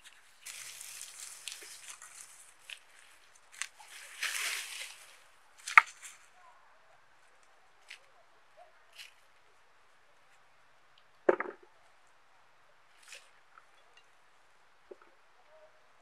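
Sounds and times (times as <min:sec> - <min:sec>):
hands scraping through dry soil: 0:00.0 - 0:06.3.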